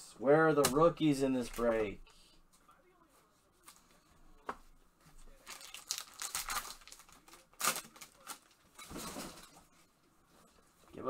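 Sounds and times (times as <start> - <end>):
cards crinkling and rustling: 5.4 - 8.8.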